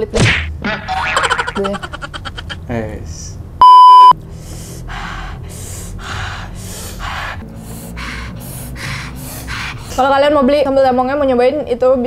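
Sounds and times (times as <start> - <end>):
censor bleep: 3.6 - 4.2
breathy gasps: 4.3 - 10.1.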